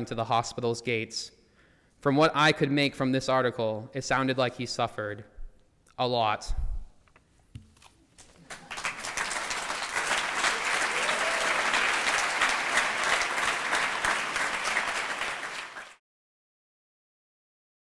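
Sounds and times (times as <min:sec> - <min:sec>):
audience applauding: 0:08.2 - 0:16.0.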